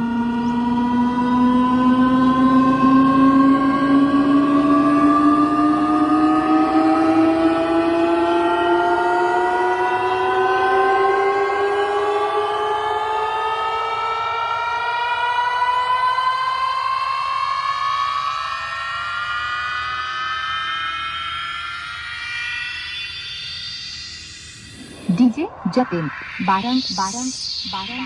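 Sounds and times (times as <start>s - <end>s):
rising electronic tone from speaker: 23.2s - 28.0s.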